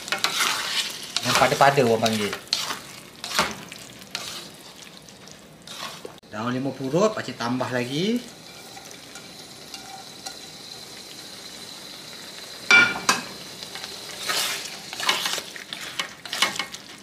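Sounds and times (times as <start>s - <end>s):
utensil scraping a pan: 0.0s - 4.8s, 5.6s - 6.2s, 8.4s - 10.4s, 14.1s - 16.8s
meat sizzling in a pan: 0.0s - 17.0s.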